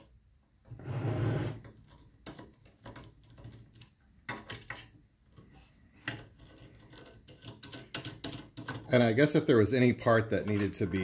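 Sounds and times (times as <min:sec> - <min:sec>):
small clicks of handled parts: 0:01.6 - 0:08.9.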